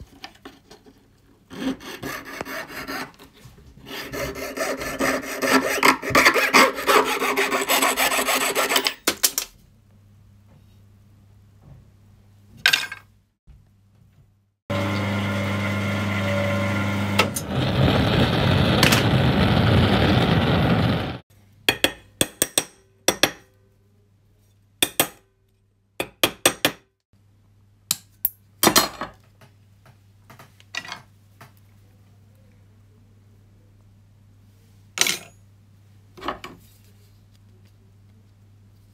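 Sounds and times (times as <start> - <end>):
steady rushing noise: 17.6 - 21.2.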